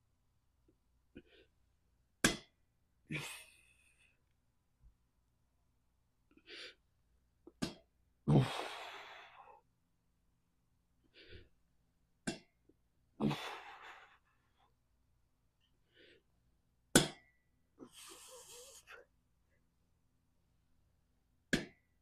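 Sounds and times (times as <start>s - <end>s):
man exhaling forcefully: 8.3s - 9.5s, 13.2s - 14.1s
man breathing softly: 17.8s - 19.1s.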